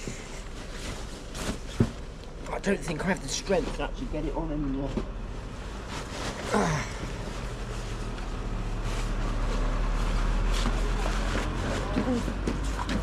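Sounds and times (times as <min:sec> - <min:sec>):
vehicle engine running: 0:03.3 - 0:13.0.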